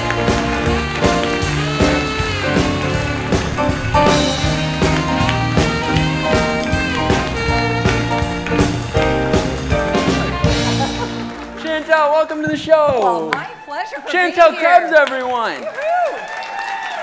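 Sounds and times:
keyboard: 0:00.0 - 0:12.1
drum kit: 0:00.0 - 0:13.0.

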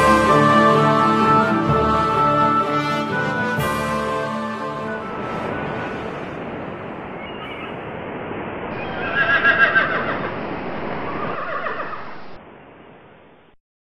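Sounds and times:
horse whinnying: 0:09.0 - 0:10.2.

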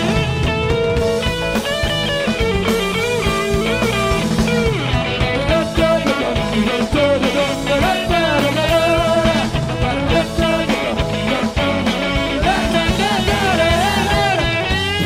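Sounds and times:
bass guitar: 0:00.0 - 0:15.0
drum kit: 0:00.0 - 0:15.0
electric guitar: 0:00.0 - 0:15.0
man singing: 0:05.2 - 0:15.0.

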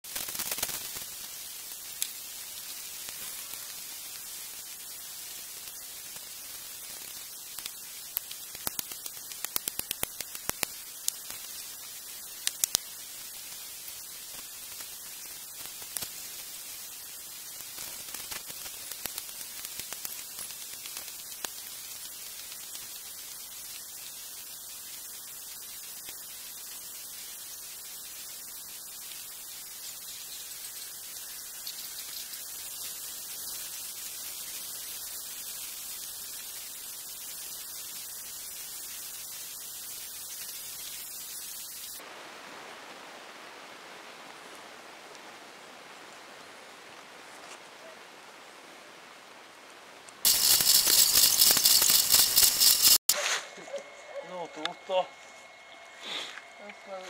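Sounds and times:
static-like hiss: 0:00.0 - 0:57.0
sharp clicks: 0:50.3 - 0:53.1.

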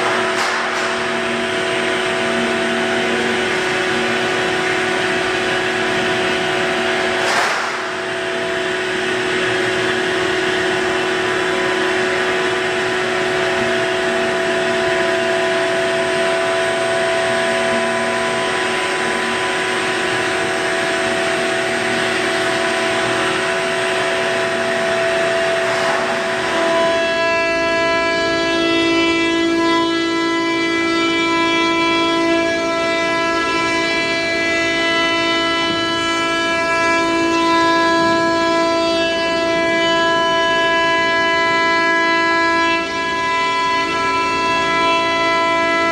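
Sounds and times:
shop vacuum whining drone: 0:00.0 - 0:45.9.

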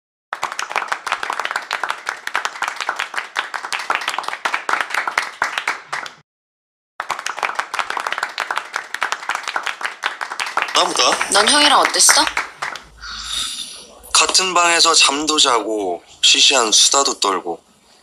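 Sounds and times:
applause: 0:00.3 - 0:06.2, 0:07.0 - 0:13.0.

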